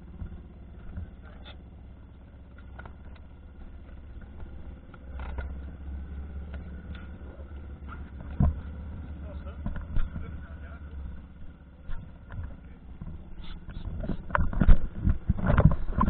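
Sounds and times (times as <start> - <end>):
boat engine humming: 0.0 - 16.0
small knocks and rustles: 6.4 - 11.2, 11.8 - 16.0.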